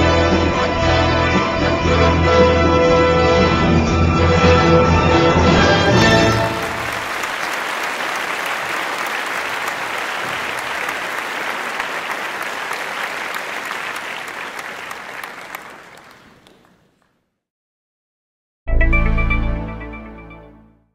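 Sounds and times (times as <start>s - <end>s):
crowd applause: 5.9s - 17.2s
music track: 18.7s - 20.9s.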